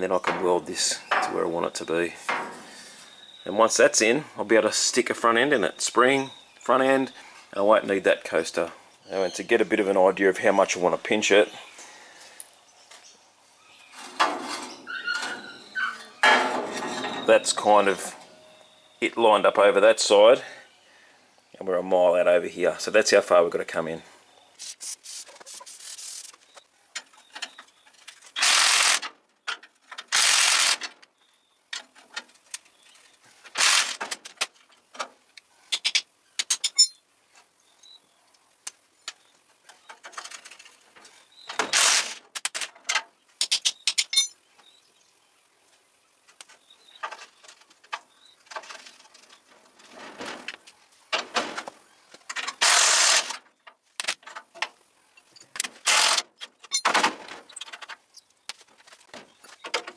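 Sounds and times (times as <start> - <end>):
metal tools clinking: 15.2 - 18.5, 36.5 - 37.0, 43.9 - 44.4, 56.6 - 57.0.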